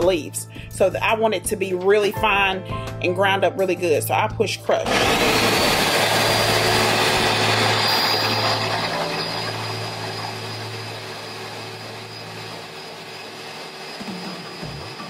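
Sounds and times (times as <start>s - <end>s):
blender motor chopping: 4.8s - 15.0s.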